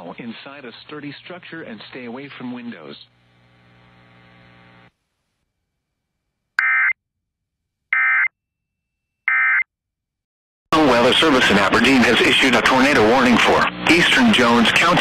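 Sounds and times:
faint steady hum: 0.1s - 6.6s.

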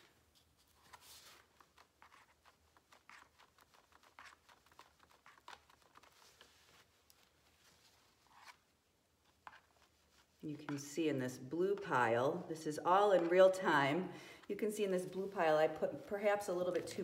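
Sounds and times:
palette knife scraping on paper: 0.9s - 6.2s.

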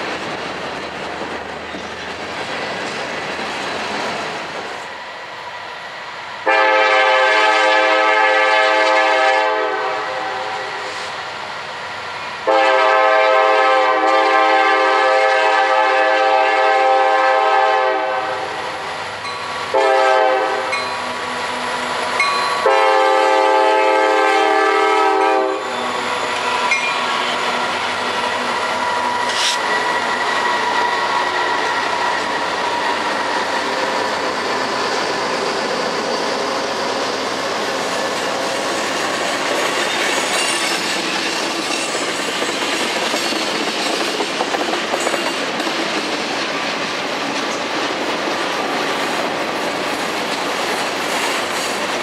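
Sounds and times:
train rumbling on rails: 0.0s - 52.0s
locomotive air horn blasts: 6.4s - 11.0s, 12.4s - 18.6s, 19.7s - 20.8s, 22.6s - 25.7s.

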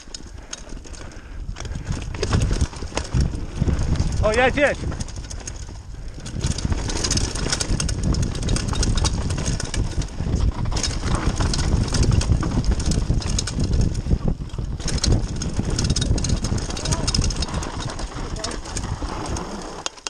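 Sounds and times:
bike rattling and clicking: 0.0s - 20.0s
tyre and wind rumble: 0.0s - 20.0s.

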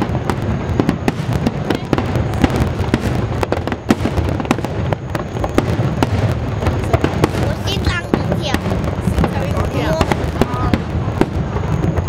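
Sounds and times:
fireworks booms and crackles: 0.0s - 12.0s.

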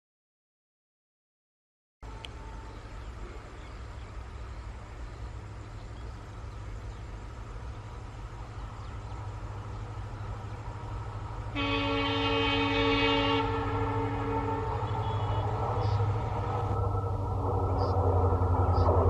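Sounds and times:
diesel locomotive engine: 2.0s - 19.0s
locomotive horn chord: 11.5s - 19.0s.

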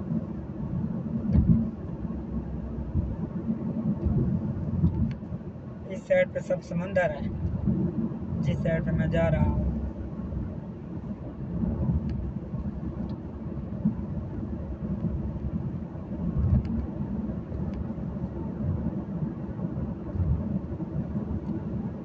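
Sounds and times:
car interior road rumble: 0.0s - 22.0s.

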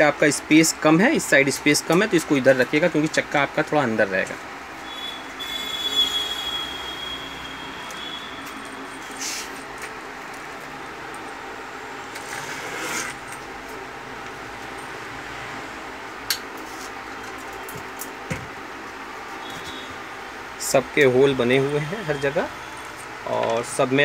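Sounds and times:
steady background hum: 0.0s - 24.0s
metal scraping on wood: 12.1s - 13.3s.

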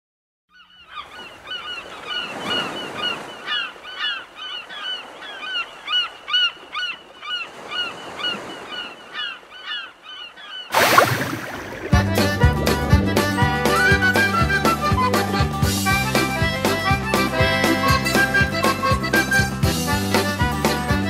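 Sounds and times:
gulls crying: 10.7s - 15.6s.

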